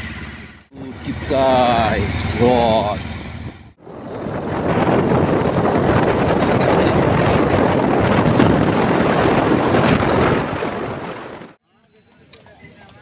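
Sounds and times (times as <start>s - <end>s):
wind buffeting microphone: 3.3s - 11.6s.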